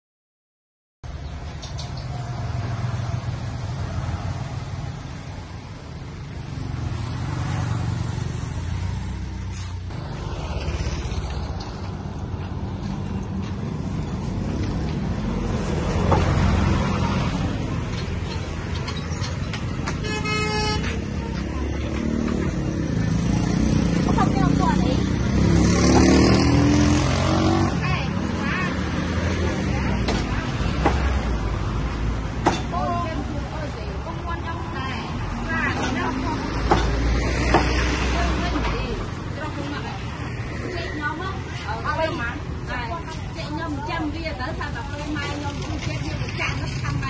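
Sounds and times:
vehicle and motorbike engines: 1.1s - 47.0s
car horn honking: 19.9s - 21.1s.

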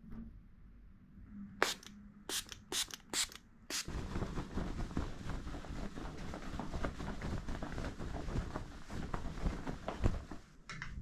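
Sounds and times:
shirt fabric rustling: 3.9s - 10.6s.

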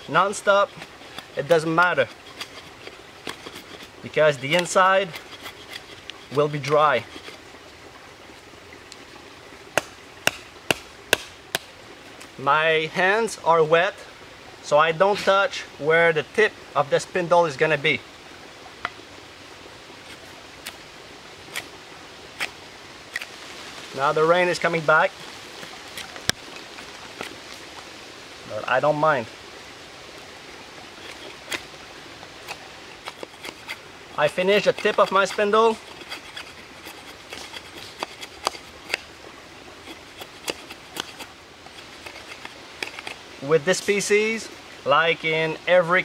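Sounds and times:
knife scraping wood: 0.0s - 7.6s, 22.4s - 23.3s, 31.0s - 31.7s, 32.4s - 39.2s, 39.8s - 44.0s
steady hiss of water: 0.0s - 46.0s.

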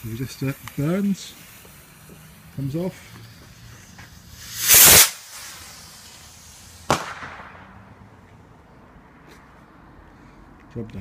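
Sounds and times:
firework rocket whooshing: 0.0s - 8.1s
firework bang: 3.2s - 8.0s.

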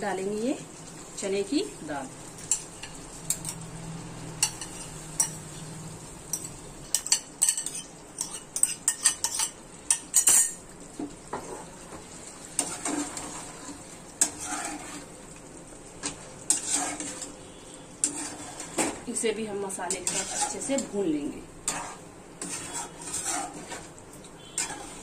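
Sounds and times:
spoon stirring food in a pan: 2.4s - 3.6s, 4.4s - 5.6s, 6.3s - 25.0s
metal spoon scraping a bowl: 6.3s - 10.6s, 14.2s - 15.1s, 16.5s - 17.3s, 18.0s - 18.8s, 19.9s - 20.9s, 21.7s - 23.8s, 24.4s - 25.0s.

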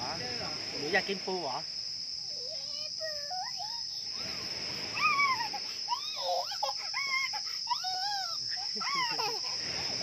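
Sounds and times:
high-pitched insect drone: 0.0s - 10.0s
toddler squealing and babbling: 2.4s - 9.6s.

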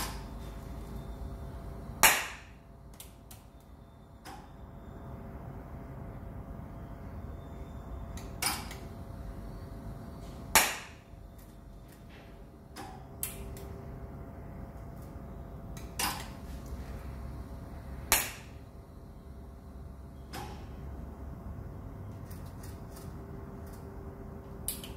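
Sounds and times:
welding machine sharp cracks: 10.5s - 11.0s.

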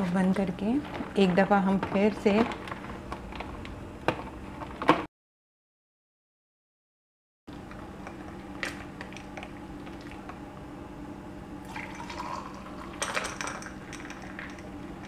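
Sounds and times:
steady low hum: 7.5s - 15.0s
drink pouring into a glass: 11.6s - 14.7s.

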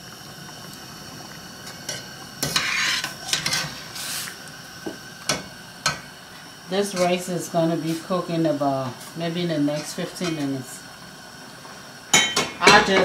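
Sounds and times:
metal spoon scraping a pot: 2.4s - 3.7s.

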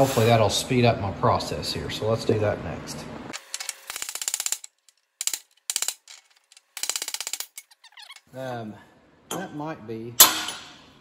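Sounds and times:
hammer striking metal punch: 10.2s - 10.9s.

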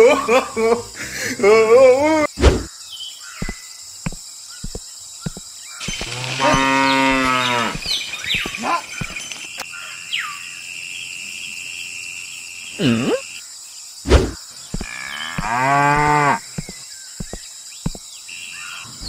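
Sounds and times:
cow mooing: 6.1s - 7.8s, 14.8s - 16.4s
heavy thump: 14.1s - 14.9s.

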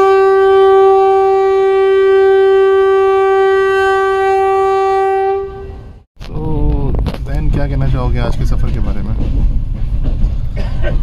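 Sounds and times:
long steady horn note: 0.0s - 6.1s.

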